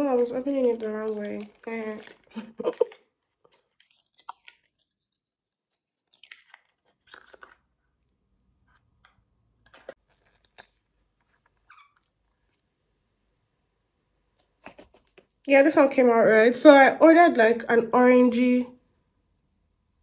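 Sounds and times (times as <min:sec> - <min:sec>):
packaging crinkling and tearing: 0:00.0 - 0:12.5.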